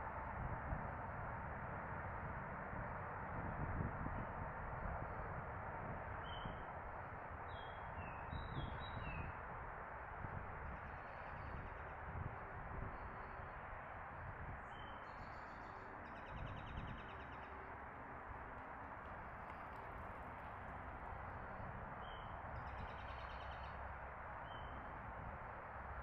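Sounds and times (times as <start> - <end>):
outdoor background noise: 0.0 - 26.0.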